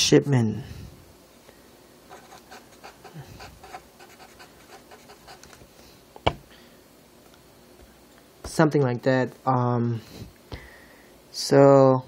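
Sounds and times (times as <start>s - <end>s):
marker pen writing on paper: 2.1s - 5.6s.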